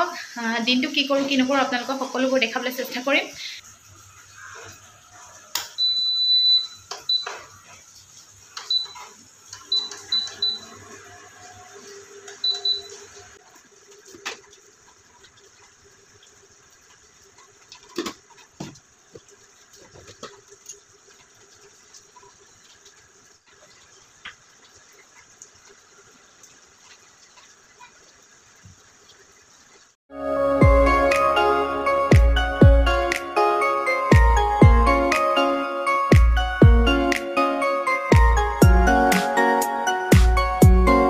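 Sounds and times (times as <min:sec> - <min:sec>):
cooktop control panel beeping: 0:05.6 - 0:07.6, 0:08.5 - 0:11.1, 0:12.3 - 0:13.4.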